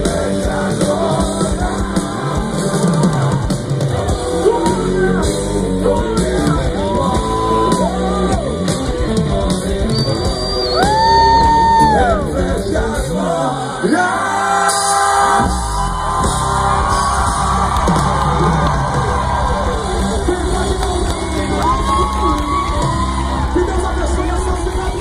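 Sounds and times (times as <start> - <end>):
person singing: 0.0 - 15.3
gospel band playing: 0.0 - 25.0
crowd yelling and whooping: 0.3 - 13.2, 13.8 - 25.0.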